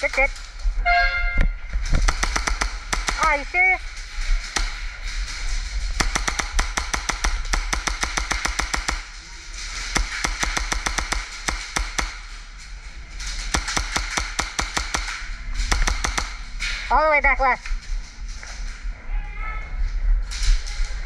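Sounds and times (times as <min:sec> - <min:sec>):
airsoft gunfire: 0:02.0 - 0:03.6, 0:04.4 - 0:05.0, 0:05.9 - 0:12.4, 0:13.4 - 0:16.6.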